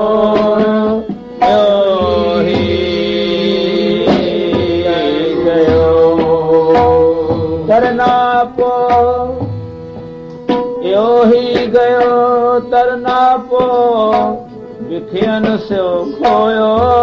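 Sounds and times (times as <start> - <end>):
tabla strokes: 0.3 - 17.0
melody with sliding notes: 1.3 - 10.8.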